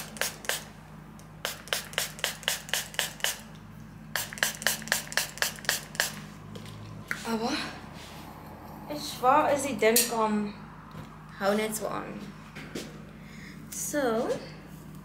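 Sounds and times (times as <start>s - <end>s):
spray bottle spritzing: 0.0s - 0.7s, 1.4s - 3.5s, 4.2s - 6.2s.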